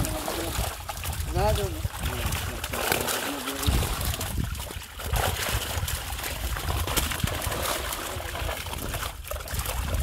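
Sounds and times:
fish splashing in shallow water: 0:00.0 - 0:10.0.

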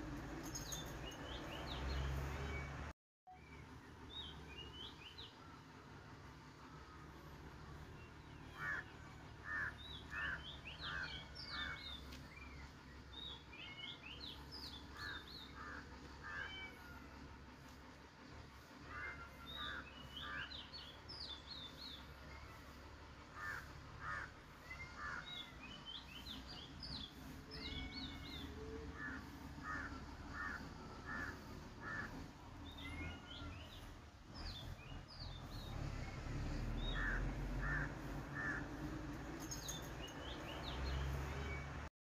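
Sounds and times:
birds making harsh calls: 0:08.4 - 0:12.6, 0:23.4 - 0:35.7
bird chirps: 0:39.2 - 0:41.7.

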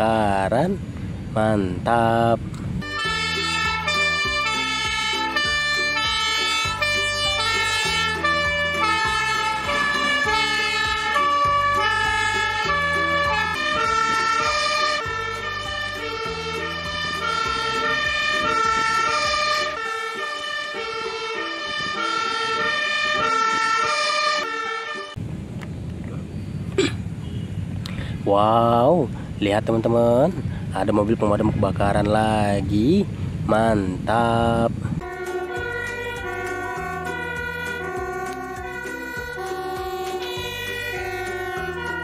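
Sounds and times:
fire engine two-tone siren: 0:02.8 - 0:25.2, 0:35.0 - 0:42.0.

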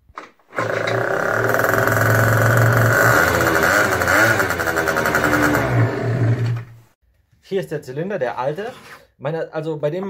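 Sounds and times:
motorcycle engine revving: 0:00.6 - 0:07.0.

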